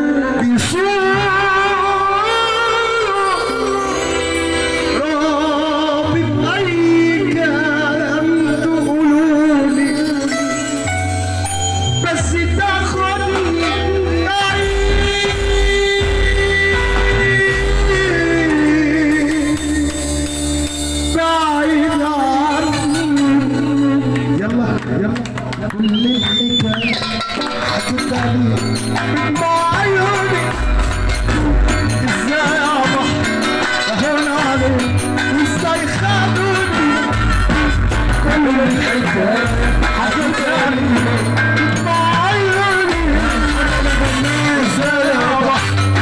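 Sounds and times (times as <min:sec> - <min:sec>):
keyboard accompaniment: 0:00.0 - 0:46.0
man singing through loudspeakers: 0:00.0 - 0:46.0
heavy pulsing bass: 0:11.0 - 0:25.9, 0:26.6 - 0:46.0.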